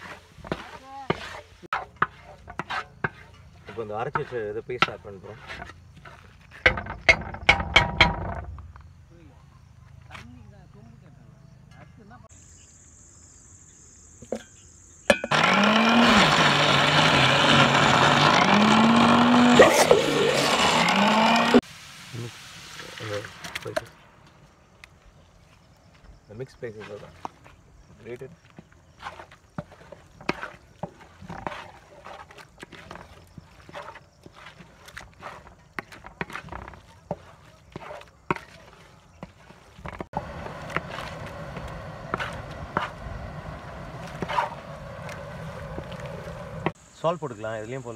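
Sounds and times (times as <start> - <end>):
spatula scraping metal pan: 0.0 - 8.0, 29.0 - 41.3
mixer grinder motor: 15.2 - 21.6, 39.8 - 46.8.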